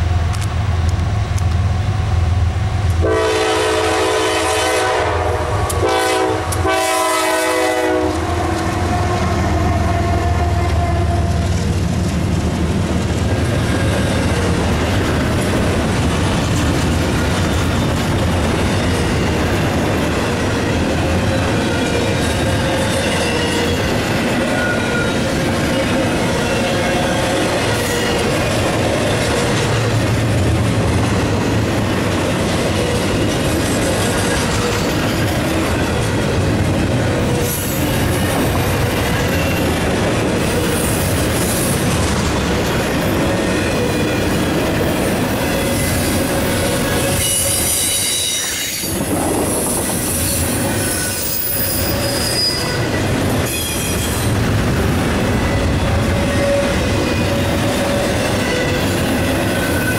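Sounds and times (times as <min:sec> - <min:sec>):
freight train wheels rumbling on rail: 0:00.0 - 0:59.9
high wheel squeal: 0:45.2 - 0:54.4, 0:55.3 - 0:59.9.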